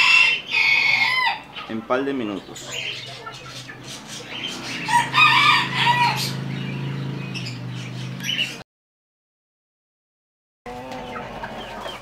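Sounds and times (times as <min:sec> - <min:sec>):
rooster crowing: 0:00.0 - 0:01.5, 0:04.8 - 0:06.5
chicken calls: 0:00.0 - 0:08.6, 0:10.7 - 0:12.0.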